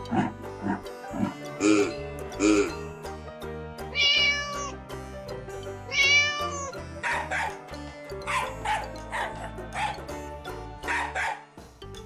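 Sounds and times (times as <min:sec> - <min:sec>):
background music with steady beat: 0:00.0 - 0:12.0
cat meowing: 0:03.9 - 0:04.8, 0:05.9 - 0:06.7.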